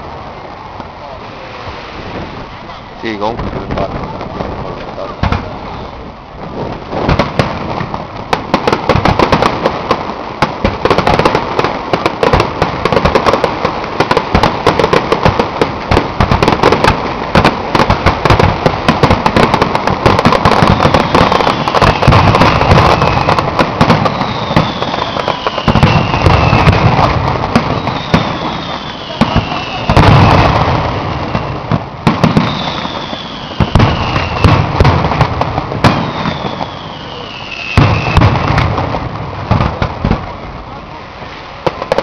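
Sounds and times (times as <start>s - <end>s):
fireworks bursts and crackles: 0.0s - 42.0s
falling firework whistles: 5.2s - 7.2s, 16.4s - 39.0s.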